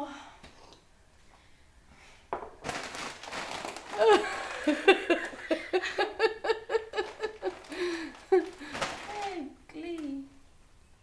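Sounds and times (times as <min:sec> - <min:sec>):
woman laughing: 0:03.9 - 0:08.7.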